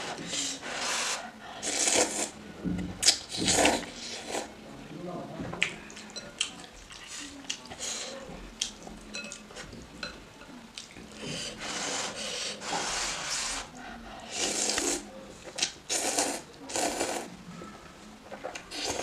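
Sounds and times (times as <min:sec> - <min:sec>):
person slurping noodles: 0:00.0 - 0:02.4, 0:03.4 - 0:04.5, 0:11.5 - 0:15.0, 0:15.9 - 0:17.3.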